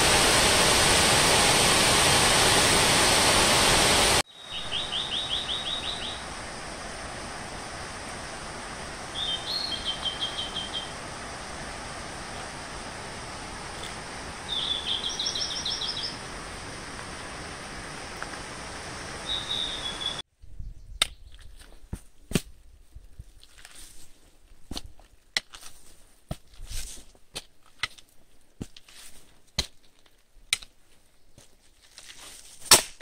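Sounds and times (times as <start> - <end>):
steady outdoor hiss: 0.0 - 20.2
bird chirping: 4.3 - 6.4, 9.1 - 11.0, 14.5 - 16.2, 19.2 - 21.4
footsteps on rock: 23.2 - 32.7.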